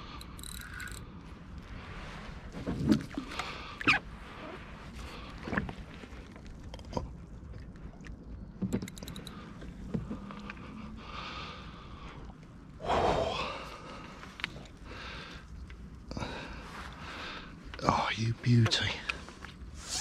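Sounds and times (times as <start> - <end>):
water sloshing and splashing: 1.2 - 11.0.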